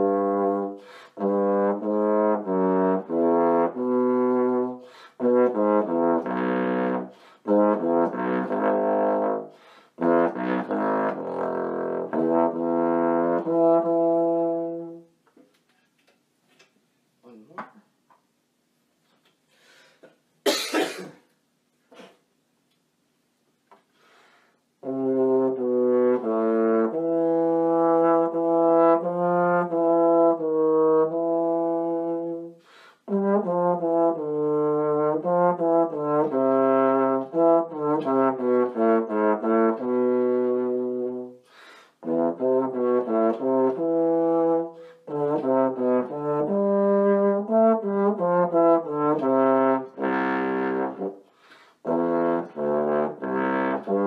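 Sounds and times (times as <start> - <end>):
trombone low notes: 0.0 - 15.1, 24.8 - 41.4, 42.0 - 51.2, 51.8 - 54.0.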